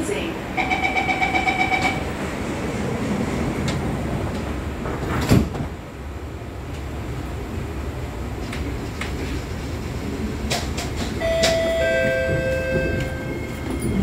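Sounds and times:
train sliding doors closing: 0.0 - 14.0.

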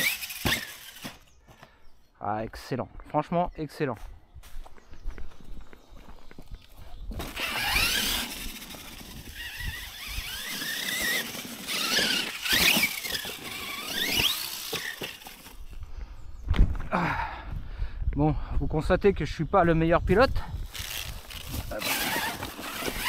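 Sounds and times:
electric motor and gears whining: 0.0 - 1.3, 6.6 - 15.8, 20.6 - 23.0.

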